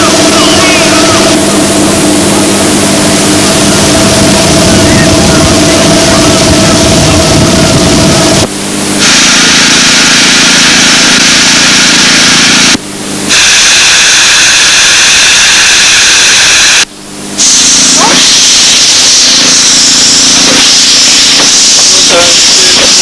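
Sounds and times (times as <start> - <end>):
steam locomotive hissing steam: 17.4 - 23.0.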